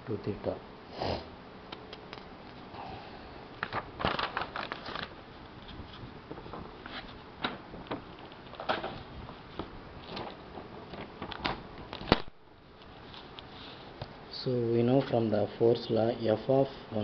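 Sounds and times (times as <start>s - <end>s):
paper rustling and crackling: 3.6s - 12.3s.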